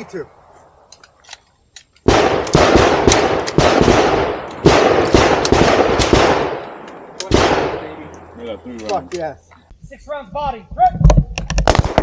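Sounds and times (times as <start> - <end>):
rapid pistol shots with echoes: 2.0 - 8.0.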